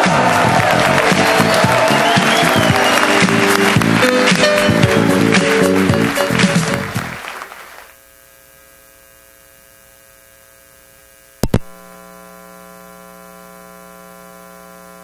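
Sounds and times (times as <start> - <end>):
mains hum from sound system: 4.6 - 15.0
sharp pop through speakers: 11.4 - 11.8.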